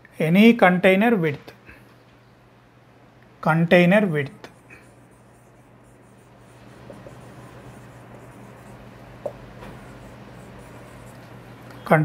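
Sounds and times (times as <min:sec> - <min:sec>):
marker scratching on whiteboard: 0:04.4 - 0:11.5.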